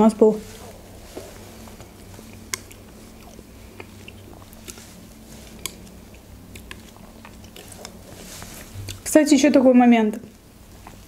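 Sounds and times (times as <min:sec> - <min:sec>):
low steady hum: 0:00.0 - 0:11.0
mouth chewing sounds: 0:00.6 - 0:09.1.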